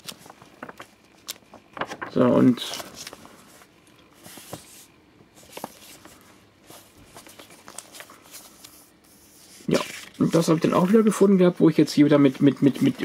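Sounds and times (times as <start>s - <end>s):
paper booklet rustling: 0.0s - 13.0s.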